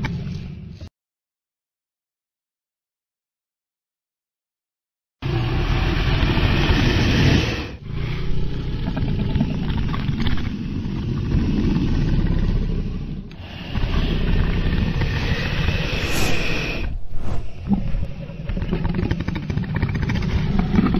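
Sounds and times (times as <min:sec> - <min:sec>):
deep rumbling dragon noise: 0:05.2 - 0:20.9.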